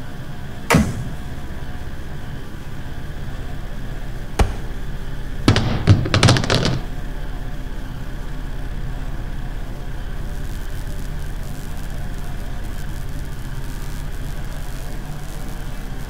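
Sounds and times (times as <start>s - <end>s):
knocks and thuds: 4.4s - 4.8s, 5.5s - 6.9s.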